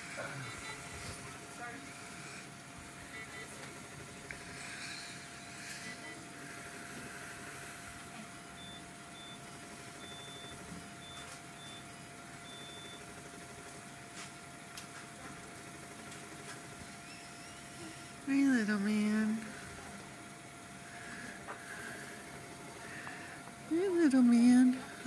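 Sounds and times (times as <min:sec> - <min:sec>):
medical equipment hum: 0:00.0 - 0:25.0
medical device high beeps: 0:08.6 - 0:09.4, 0:10.0 - 0:13.0
faint continuous tone: 0:17.0 - 0:25.0.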